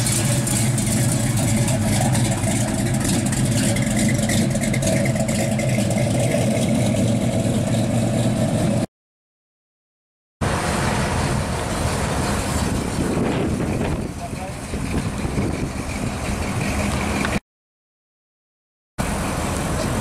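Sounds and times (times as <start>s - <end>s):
pickup exhaust rumbling: 0.0s - 8.9s, 10.4s - 17.4s.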